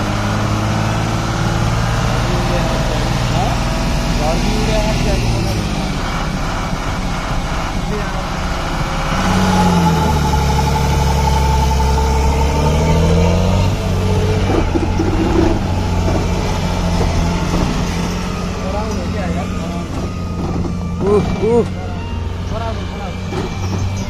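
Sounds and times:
diesel truck engine running: 0:00.0 - 0:24.0.

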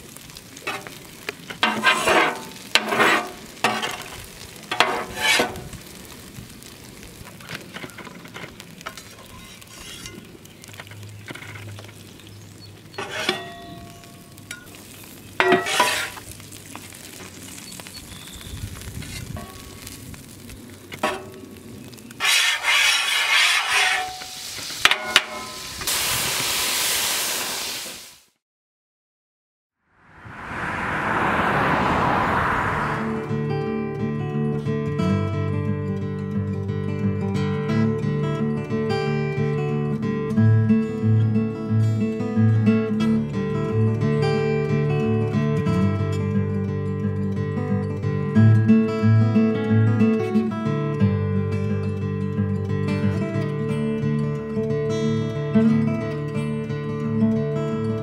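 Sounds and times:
food sizzling: 0:00.0 - 0:28.4
metal spatulas scraping griddle: 0:01.6 - 0:04.1, 0:04.7 - 0:05.7, 0:08.9 - 0:10.2, 0:13.0 - 0:13.7, 0:15.4 - 0:16.2, 0:22.2 - 0:25.6.

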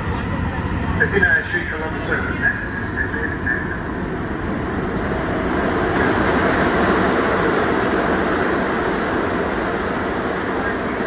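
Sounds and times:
subway train rumbling in tunnel: 0:00.0 - 0:11.0.

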